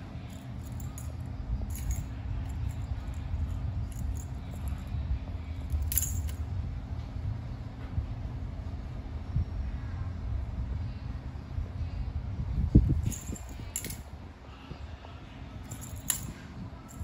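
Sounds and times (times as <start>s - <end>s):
steady low rumble: 0.0s - 17.0s
cat toy jingling on tile floor: 0.3s - 4.9s, 5.6s - 6.4s, 12.9s - 14.0s, 15.7s - 17.0s.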